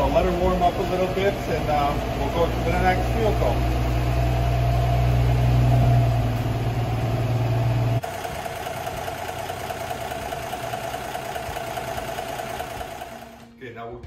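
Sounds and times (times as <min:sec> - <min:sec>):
car engine idling: 0:00.0 - 0:13.4.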